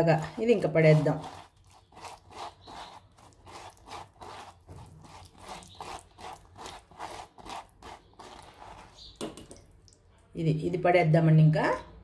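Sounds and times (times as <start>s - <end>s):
wet scraping on mesh strainer: 0.3s - 9.6s.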